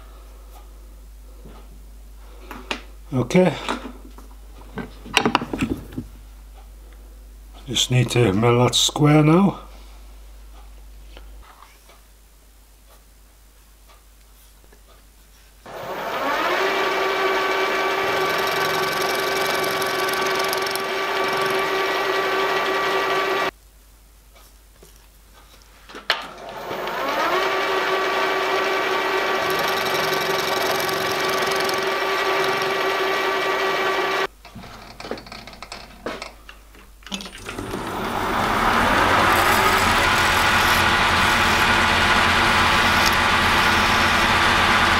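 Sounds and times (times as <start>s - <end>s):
end mill cutting steel: 15.7s - 23.5s, 26.4s - 34.3s, 37.2s - 44.9s
lathe starting up: 15.7s - 23.5s, 26.4s - 34.3s, 37.2s - 44.9s
milling machine motor whining: 15.7s - 23.5s, 26.5s - 34.3s, 37.1s - 44.9s.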